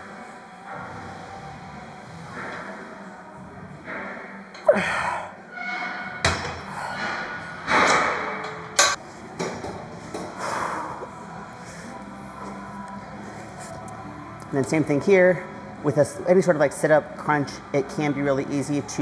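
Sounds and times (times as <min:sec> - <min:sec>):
gym equipment clanking: 0:05.6 - 0:10.3.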